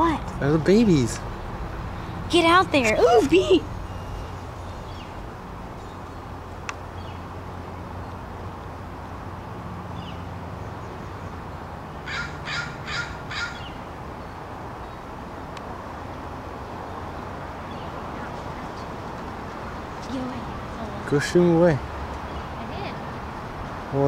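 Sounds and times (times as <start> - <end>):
low background hum: 0.0 - 9.5
crow cawing: 12.1 - 13.7.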